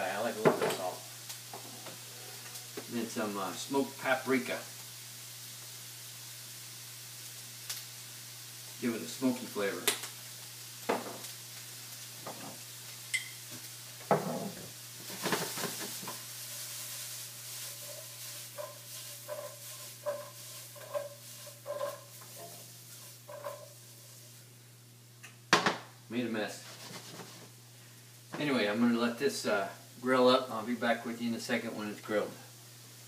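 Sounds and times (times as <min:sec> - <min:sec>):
vegetables sizzling in oil: 0:00.0 - 0:33.0
skillet scraping on burner: 0:14.1 - 0:24.4, 0:26.5 - 0:27.6.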